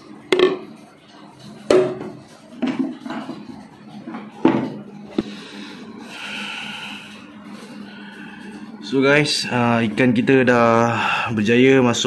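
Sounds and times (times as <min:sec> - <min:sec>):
aquarium pumps humming: 0:00.0 - 0:12.0.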